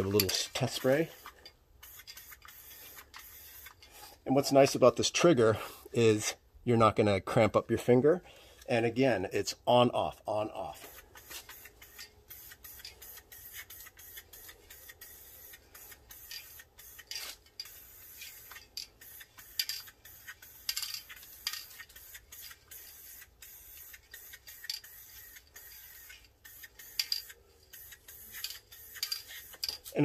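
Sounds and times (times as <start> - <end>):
aerosol spray can hissing: 0.8 - 3.8, 10.8 - 30.0.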